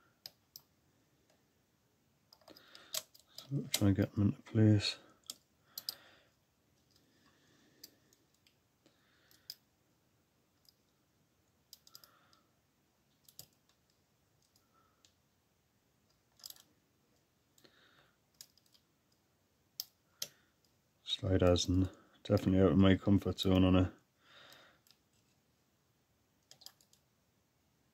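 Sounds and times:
lock pick clicking and scraping: 2.4 - 3.9, 16.3 - 16.7.

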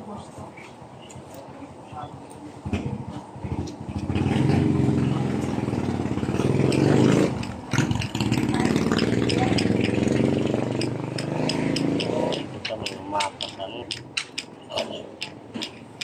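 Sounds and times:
engine running: 3.4 - 16.0.

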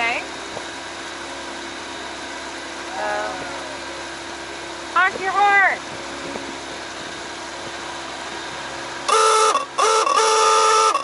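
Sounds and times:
boat engine idling: 0.0 - 11.0
boat horn blasts: 9.0 - 11.0.

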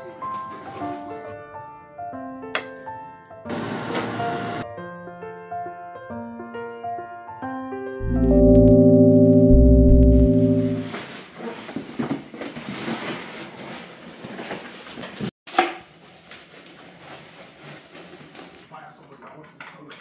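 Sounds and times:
electronic intro music: 8.0 - 10.9
plastic wrapping rustling: 15.8 - 18.6.

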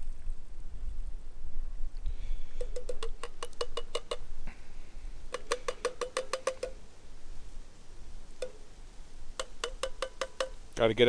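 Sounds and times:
metal cans knocking: 2.6 - 4.3, 5.3 - 6.8, 9.4 - 10.6.

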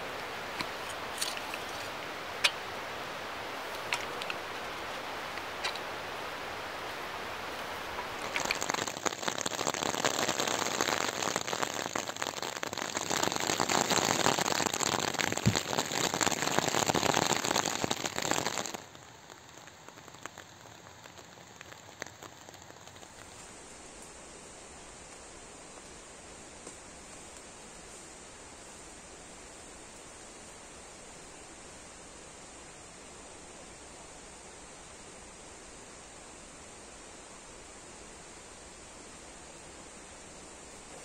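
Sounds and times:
rain pattering on fabric: 0.0 - 41.0
soft steady hiss: 0.0 - 41.0.

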